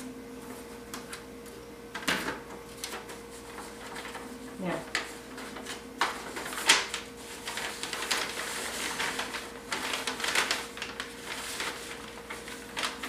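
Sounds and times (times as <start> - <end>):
faint steady hum: 0.0 - 13.0
paper rustling and crinkling: 2.2 - 13.0.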